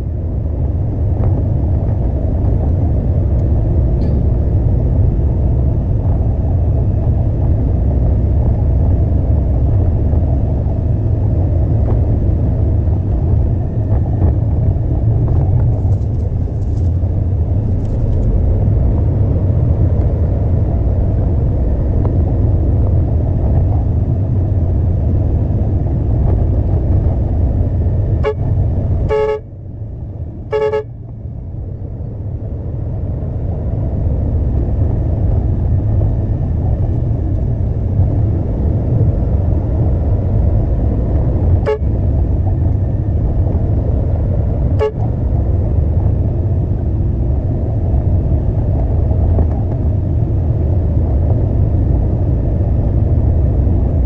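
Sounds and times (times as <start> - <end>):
truck engine rumbling: 0.0 - 54.0
vehicle horn toots: 28.2 - 29.5, 30.5 - 31.0, 41.6 - 42.0, 44.8 - 45.1.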